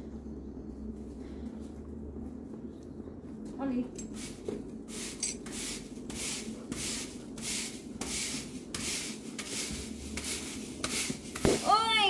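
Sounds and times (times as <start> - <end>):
push broom sweeping concrete: 4.1 - 12.0.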